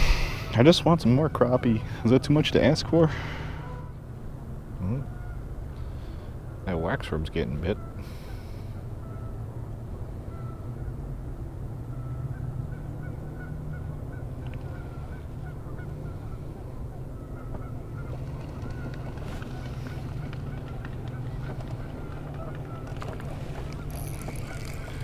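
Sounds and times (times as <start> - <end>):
steady low rumble: 0.0 - 0.9
geese honking: 11.9 - 25.0.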